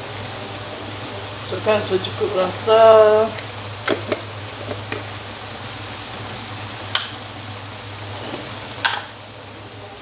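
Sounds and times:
eggplant simmering in a wok: 0.0 - 10.0.

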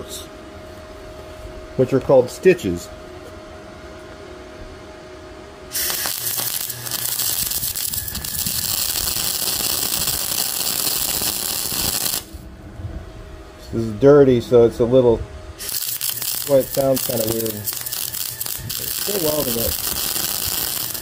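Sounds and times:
welding arc crackling: 5.7 - 12.4, 15.6 - 21.0.

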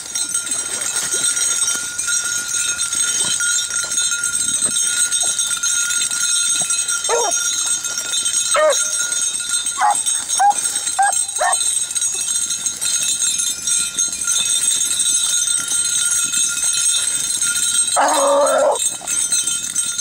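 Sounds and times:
beagles baying and yelping: 7.1 - 7.5, 8.5 - 9.1, 9.8 - 11.7, 18.0 - 19.2.

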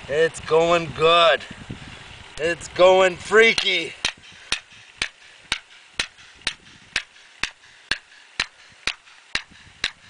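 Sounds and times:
hammer striking chisel on rock: 3.5 - 10.0.

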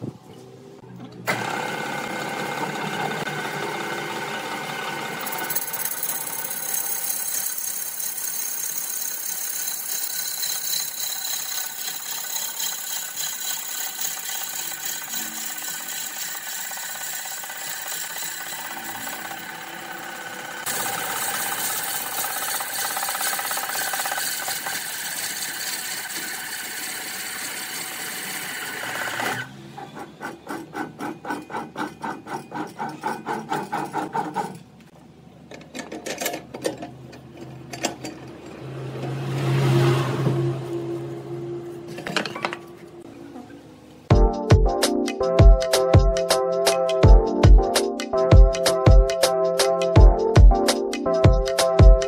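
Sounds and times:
lathe tool scraping wood: 1.3 - 34.7.

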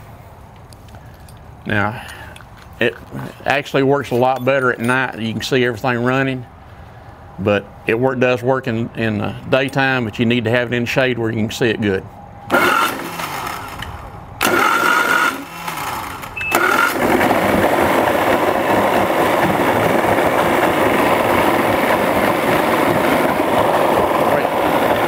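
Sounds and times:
engine misfiring: 12.5 - 25.0
outboard engine cranking and running: 12.5 - 25.0.

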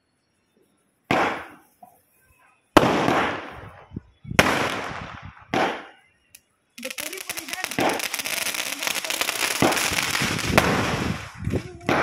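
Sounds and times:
firework bangs: 1.1 - 1.6, 2.8 - 6.0, 6.8 - 12.0.

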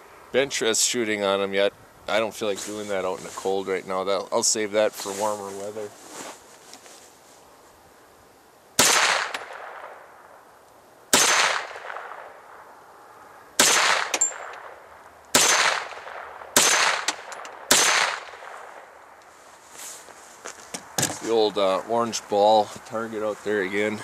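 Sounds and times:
gunshots with echo: 8.8 - 10.0, 11.1 - 12.4, 13.6 - 14.7, 15.3 - 18.8.

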